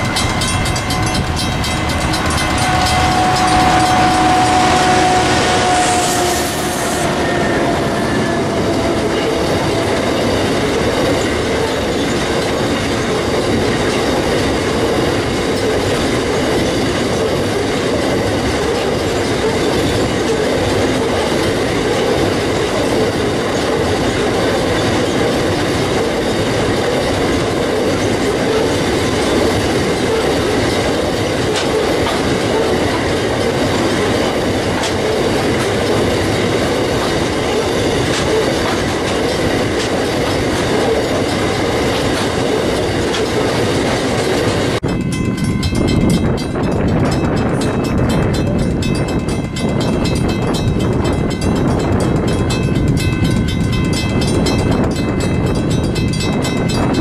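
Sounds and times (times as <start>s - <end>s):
diesel locomotive whine: 0.0s - 57.0s
train wheels clattering on rails: 0.0s - 57.0s.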